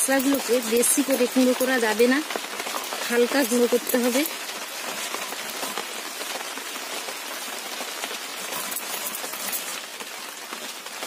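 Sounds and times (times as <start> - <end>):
stone grinding spices: 8.5 - 9.8.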